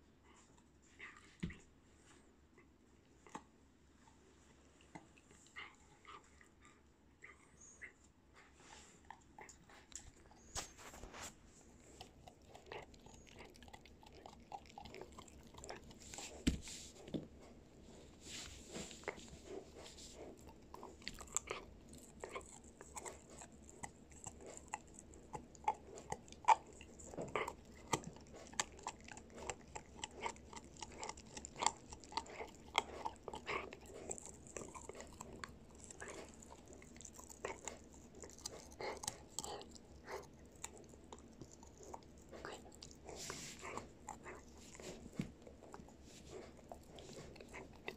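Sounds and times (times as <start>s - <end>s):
puppy chewing a hard chew: 9.2s - 17.6s, 18.8s - 47.9s.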